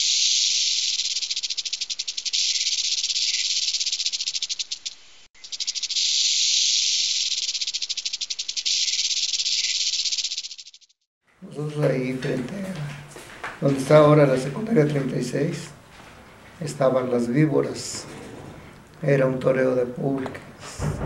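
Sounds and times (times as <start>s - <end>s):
rattlesnake rattle: 0.0s - 11.1s.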